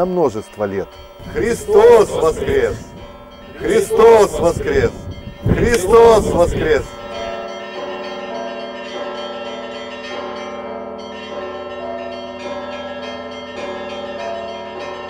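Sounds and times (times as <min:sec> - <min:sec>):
church bells ringing: 0:00.0 - 0:15.0.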